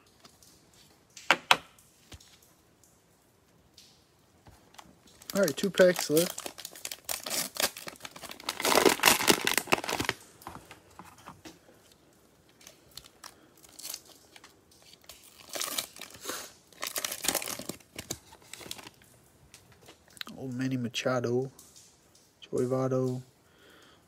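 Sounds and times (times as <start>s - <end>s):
plastic wrapper crinkling and tearing: 4.5s - 20.2s.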